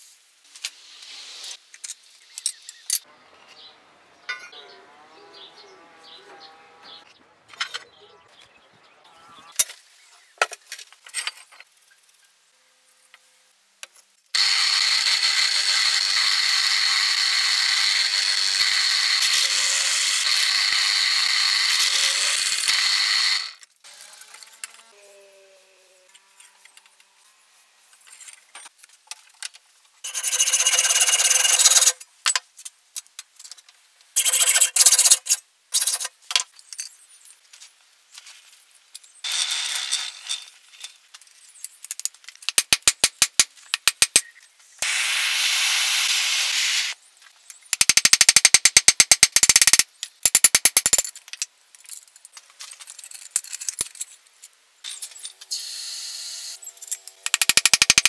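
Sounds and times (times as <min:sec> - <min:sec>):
scraping on metal: 0:03.4 - 0:08.0.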